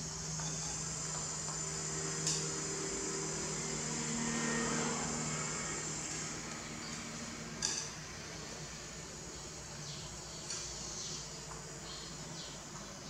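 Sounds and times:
low hum: 0.0s - 9.5s
insects chirring: 0.0s - 13.0s.

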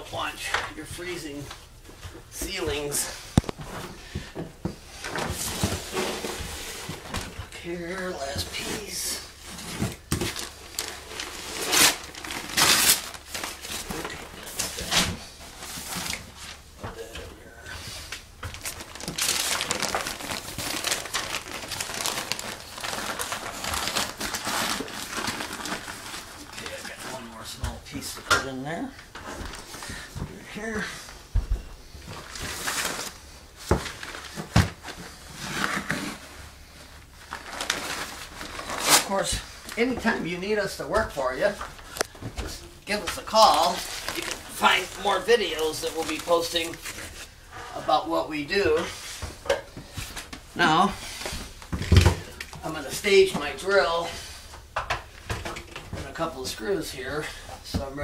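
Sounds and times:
insulation crinkling and tearing: 5.0s - 28.2s, 32.0s - 47.4s.

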